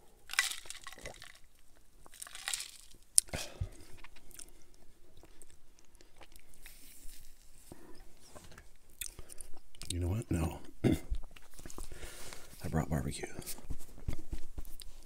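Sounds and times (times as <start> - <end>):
person swallowing: 10.8 - 11.4.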